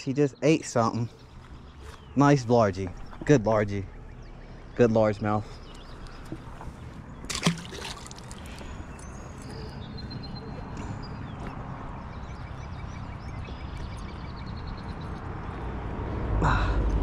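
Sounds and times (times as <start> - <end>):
faint bird chirps: 0.0 - 7.2, 8.5 - 15.2
outdoor background noise: 0.0 - 17.0
fish splashing into water: 7.2 - 8.7.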